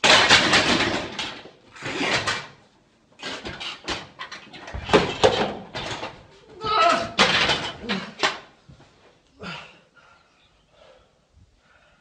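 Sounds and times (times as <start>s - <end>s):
man straining cries: 6.6s - 7.2s.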